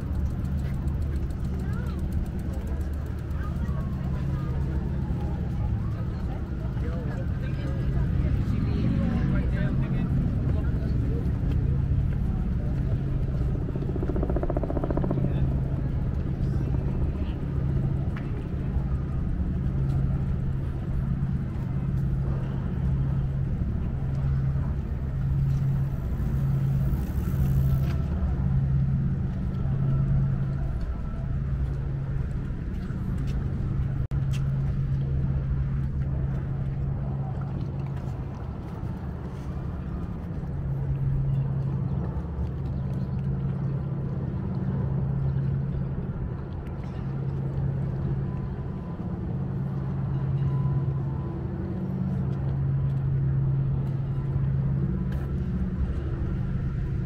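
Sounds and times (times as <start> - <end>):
low engine hum: 0.0 - 57.0.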